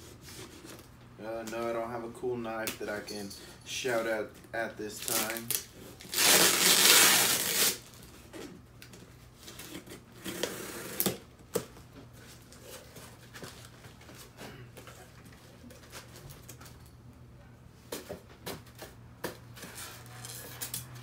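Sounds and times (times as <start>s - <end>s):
packing tape ripping: 5.0s - 8.0s, 9.5s - 11.2s.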